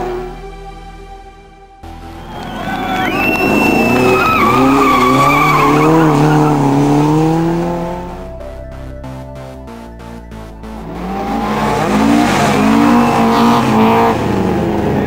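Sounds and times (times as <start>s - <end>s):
race car engine running hard: 2.2s - 15.0s
tyres squealing: 2.3s - 7.1s.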